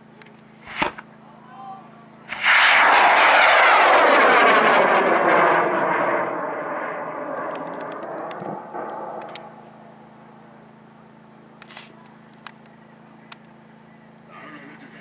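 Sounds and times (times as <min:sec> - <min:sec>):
rocket motor roaring: 0:00.6 - 0:01.2, 0:02.3 - 0:10.5
falling whooshing sweep: 0:02.3 - 0:09.4.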